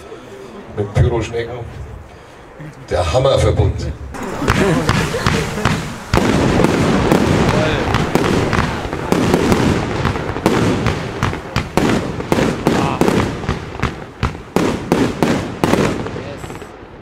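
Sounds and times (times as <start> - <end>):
firework cake firing: 4.1 - 17.0
firework launches and crackle: 4.1 - 17.0
sharp reports of bursting shells: 4.2 - 16.8.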